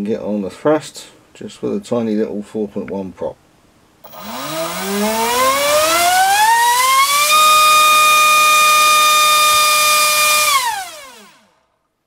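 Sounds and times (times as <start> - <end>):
electric motor propeller whine: 4.0 - 11.6.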